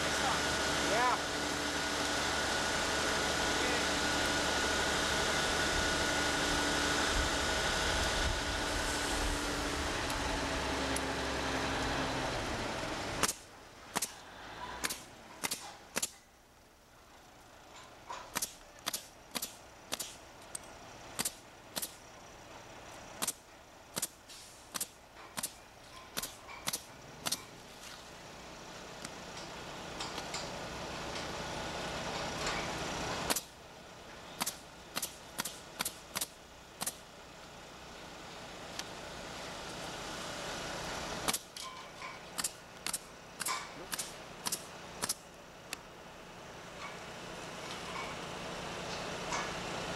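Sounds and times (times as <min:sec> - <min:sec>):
engine humming: 0:00.0 - 0:49.9
pneumatic nailer shots: 0:13.1 - 0:16.3, 0:18.0 - 0:20.2, 0:21.1 - 0:22.0, 0:23.2 - 0:27.5, 0:32.2 - 0:33.6, 0:34.4 - 0:37.0, 0:41.2 - 0:45.3.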